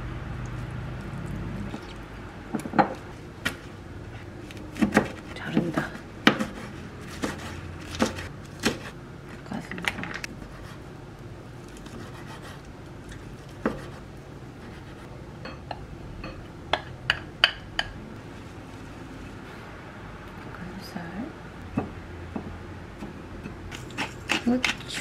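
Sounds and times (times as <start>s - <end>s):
knife chopping on wooden board: 4.8s - 8.9s, 13.6s - 14.0s
glass bowl clinking on dish: 15.4s - 16.4s.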